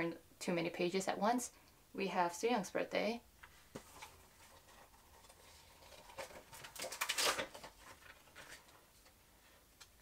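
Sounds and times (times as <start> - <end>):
calendar pages turning: 3.7 - 9.1.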